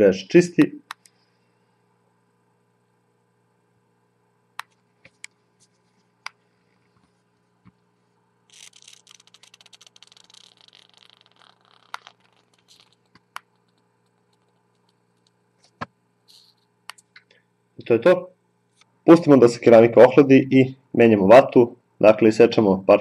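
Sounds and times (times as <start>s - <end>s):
heater coil crackling: 4.5s - 20.7s.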